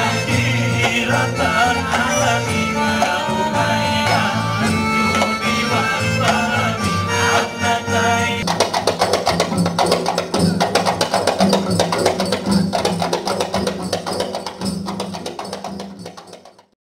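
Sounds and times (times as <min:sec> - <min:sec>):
sustained melody: 0:00.0 - 0:08.4
sharp wood-block-like percussion: 0:00.0 - 0:16.8.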